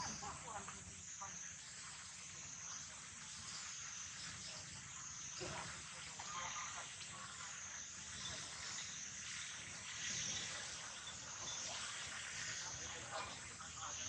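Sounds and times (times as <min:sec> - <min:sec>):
steady high-pitched hiss: 0:00.0 - 0:14.0
croak-like animal calls: 0:06.2 - 0:08.7.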